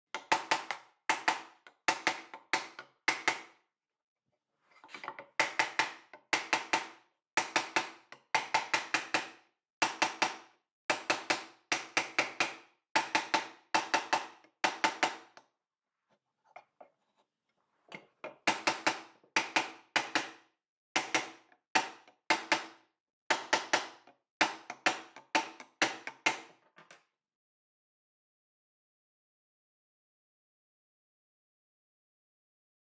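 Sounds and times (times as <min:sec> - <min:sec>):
hammer knocking wooden block: 0:00.2 - 0:03.6, 0:04.9 - 0:15.5, 0:17.9 - 0:27.0.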